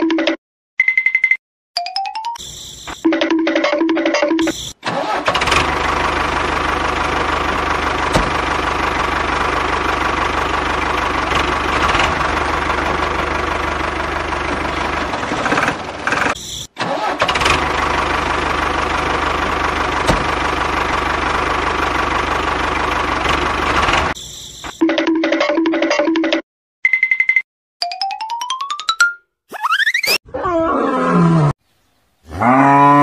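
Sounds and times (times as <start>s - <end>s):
tractor engine running: 4.4s - 24.2s.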